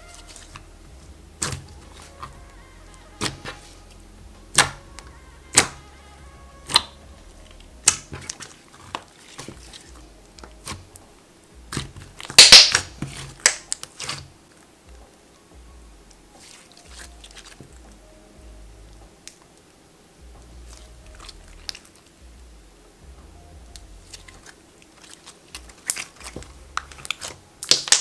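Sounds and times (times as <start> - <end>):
slime popping and crackling: 0.0 - 5.9, 6.6 - 14.6, 16.1 - 18.0, 20.4 - 22.1, 23.7 - 28.0.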